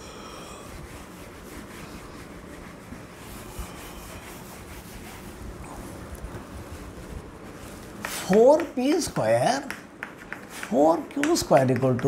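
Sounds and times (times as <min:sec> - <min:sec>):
eraser rubbing on chalkboard: 0:00.7 - 0:05.9.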